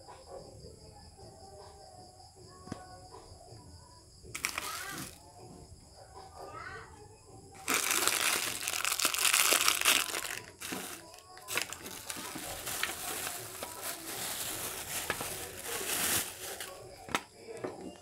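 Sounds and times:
plastic bag crinkling: 4.4s - 5.2s, 7.6s - 17.2s.

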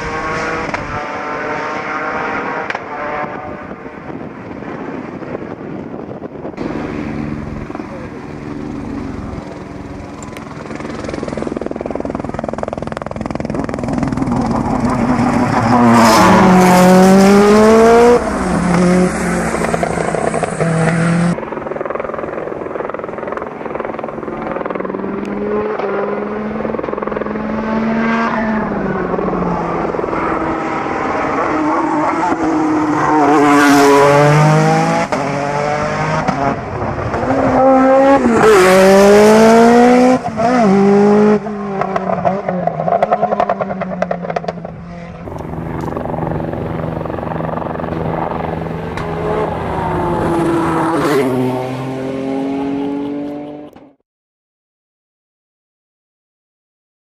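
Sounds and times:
race car accelerating hard: 0.0s - 4.2s, 13.4s - 21.4s, 22.1s - 54.0s.

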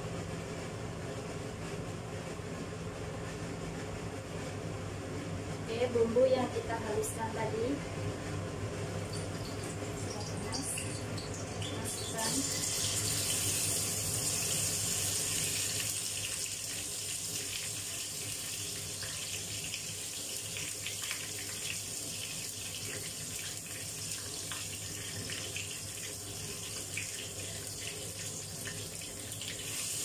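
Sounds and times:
paste sizzling in hot oil: 11.6s - 30.0s.

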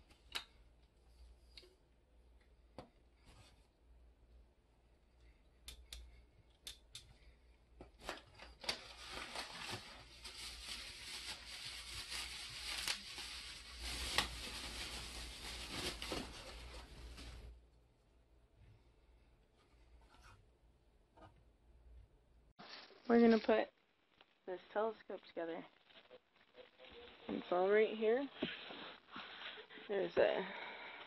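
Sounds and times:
plastic bag crinkling: 8.1s - 17.5s, 22.6s - 23.7s.

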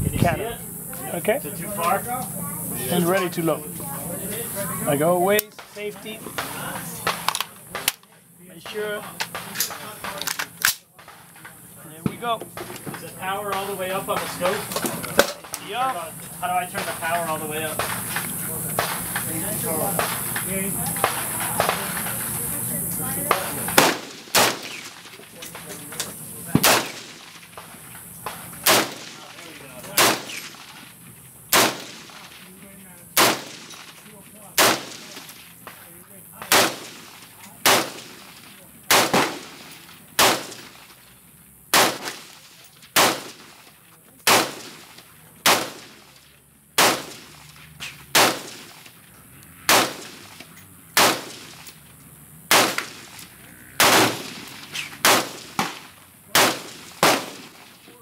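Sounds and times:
rifle gunshots: 16.8s - 22.2s, 23.2s - 25.8s, 26.5s - 30.8s, 31.5s - 35.8s, 36.4s - 40.9s, 41.7s - 43.6s, 44.2s - 46.0s, 46.8s - 48.9s, 49.5s - 57.8s.

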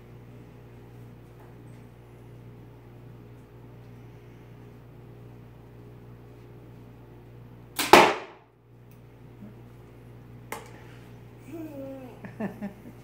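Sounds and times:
arrow striking target: 7.8s - 8.4s.

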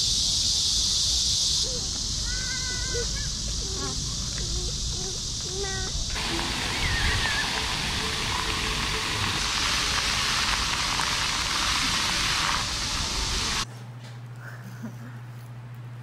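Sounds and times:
fountain water jets splashing: 6.1s - 13.6s.

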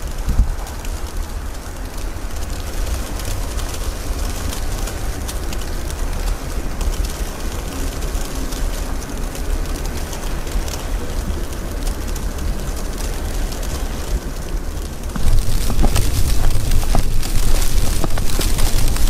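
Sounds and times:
strong wind buffeting microphone: 0.0s - 19.0s.

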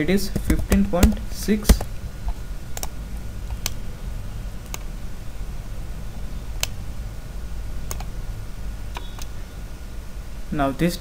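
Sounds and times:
low electrical hum: 0.0s - 11.0s
computer mouse clicks: 2.8s - 3.8s, 7.9s - 8.1s, 8.9s - 9.3s.

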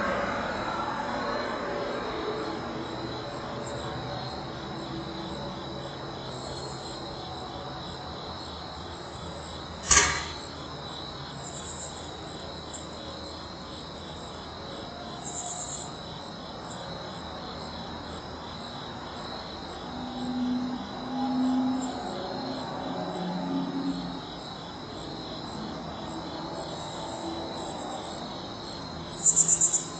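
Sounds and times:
crickets chirring: 0.0s - 29.9s
sharp knock: 9.8s - 10.5s.

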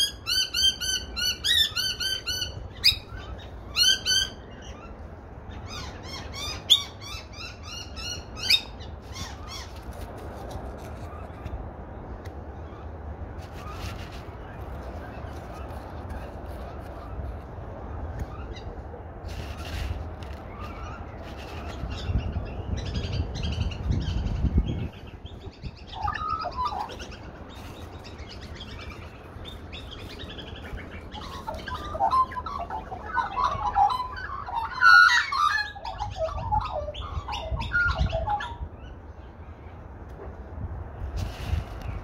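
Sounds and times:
magpies calling: 0.0s - 9.8s, 20.4s - 39.4s.

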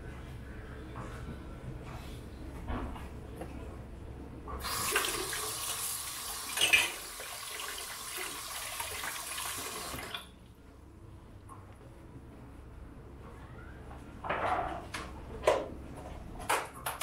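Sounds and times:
water running from tap: 4.6s - 10.3s.

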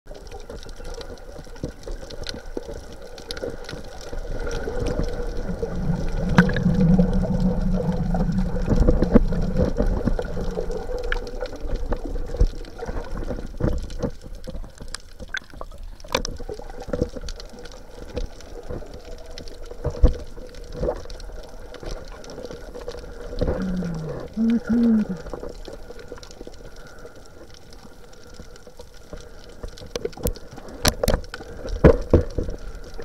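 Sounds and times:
muffled rush of underwater water: 0.1s - 33.0s
sharp clicks underwater: 0.4s - 33.0s.

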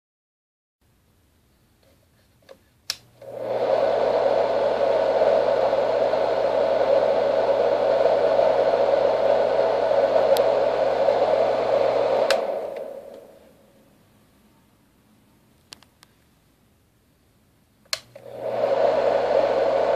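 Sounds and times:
fan rushing noise: 3.2s - 13.9s, 18.0s - 19.9s.

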